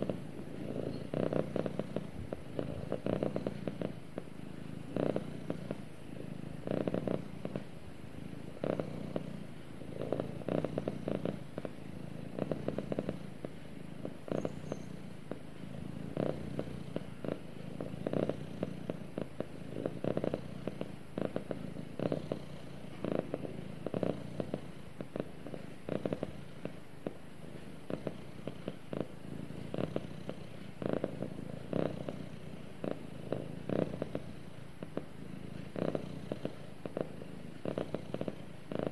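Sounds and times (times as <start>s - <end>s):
cat purring: 0.0s - 38.9s.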